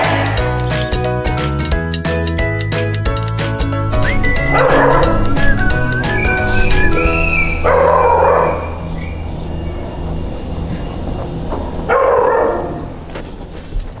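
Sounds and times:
low sustained music note: 0:03.8 - 0:11.4
dog barks: 0:04.4 - 0:05.4, 0:07.5 - 0:08.8, 0:11.9 - 0:13.0.

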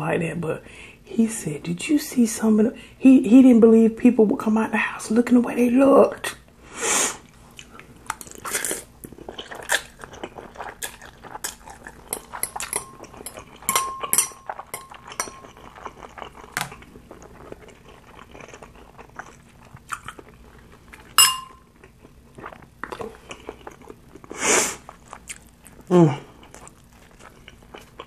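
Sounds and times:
wet chewing: 0:07.4 - 0:28.0
fork scraping glass bowl: 0:12.1 - 0:15.5
sharp ringing clink: 0:13.7 - 0:15.4, 0:21.2 - 0:21.6
slurping noodles: 0:24.3 - 0:24.8.

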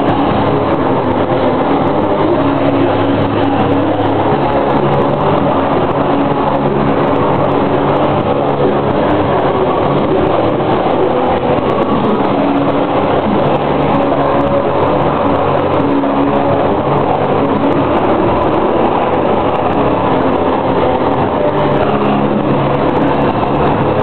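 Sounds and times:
live band playing distorted music: 0:00.0 - 0:24.0.

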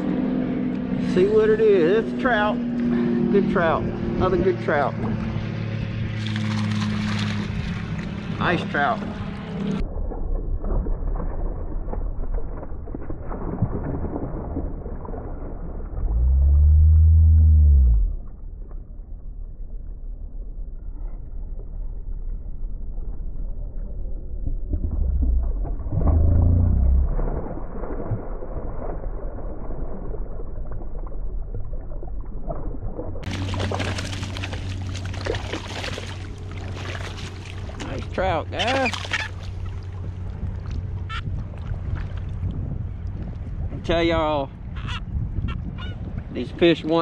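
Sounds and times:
muffled wind rumble: 0:00.0 - 0:38.6, 0:39.3 - 0:47.0
deep hum: 0:00.0 - 0:43.8
choppy water: 0:00.0 - 0:47.0
fish splashing at the surface: 0:05.0 - 0:08.4, 0:10.1 - 0:16.1, 0:25.7 - 0:31.3, 0:32.0 - 0:42.4.

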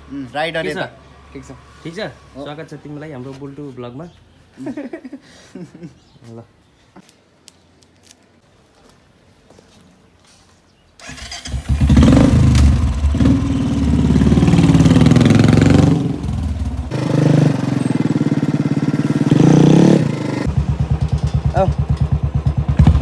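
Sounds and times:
motorcycle engine revving: 0:11.0 - 0:23.0.

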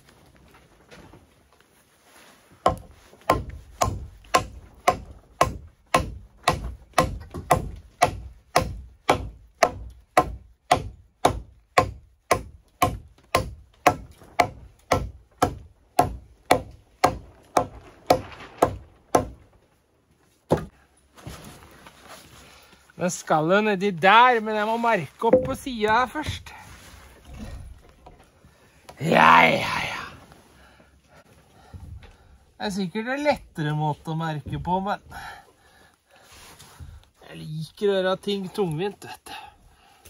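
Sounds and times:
axe chopping wood: 0:02.7 - 0:19.4, 0:20.5 - 0:20.8.

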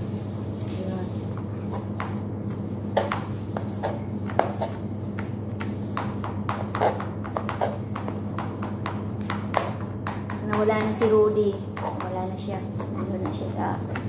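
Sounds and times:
steady low hum: 0:00.0 - 0:14.0
knife tapping on cutting board: 0:05.2 - 0:11.0.

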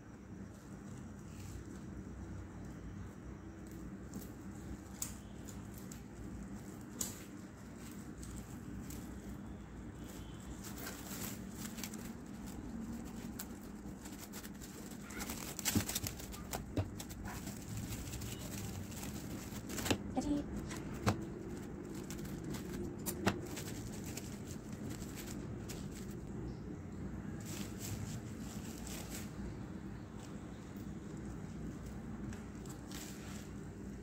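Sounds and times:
cling film crinkling: 0:03.8 - 0:26.3.

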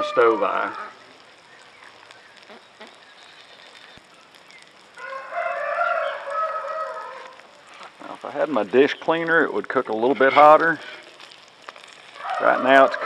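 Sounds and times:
rooster crowing: 0:00.0 - 0:01.0, 0:04.9 - 0:07.4, 0:12.2 - 0:13.0.

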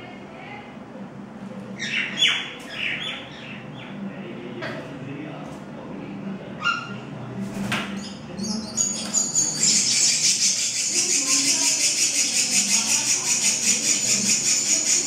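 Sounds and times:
nestlings begging calls: 0:01.8 - 0:03.9, 0:08.0 - 0:15.0.

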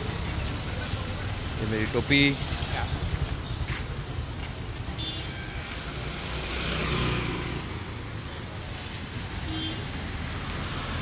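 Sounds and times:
busy street traffic: 0:00.0 - 0:11.0
vehicle passing close by: 0:06.0 - 0:08.1.

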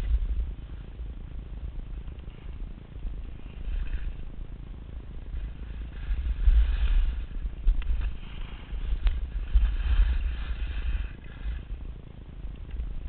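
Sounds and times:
wind buffeting microphone: 0:00.0 - 0:13.0
snowboard edges scraping snow: 0:03.4 - 0:04.3, 0:05.2 - 0:11.8.

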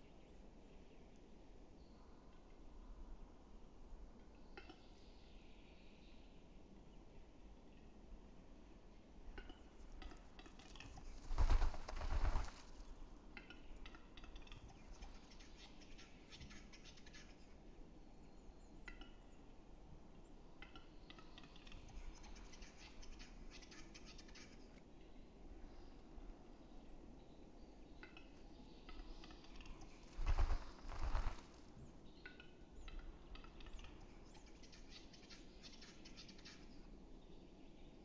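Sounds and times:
bird display song dry clicks: 0:04.2 - 0:05.4, 0:09.3 - 0:17.6, 0:18.7 - 0:19.4, 0:20.1 - 0:24.9, 0:27.2 - 0:36.8.

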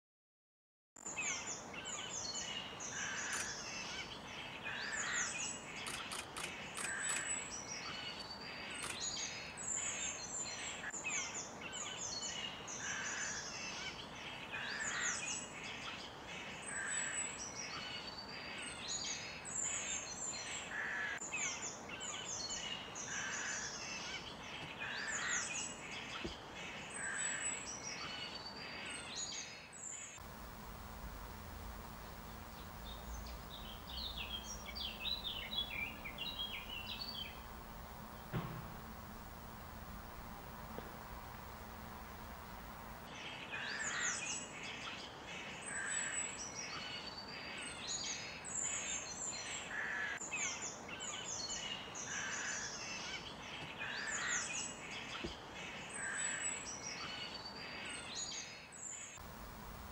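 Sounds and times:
birds chirping and calling: 0:30.2 - 0:43.1, 0:59.2 - 0:59.9
steady background hiss: 0:30.2 - 0:43.2, 0:59.2 - 0:59.9.

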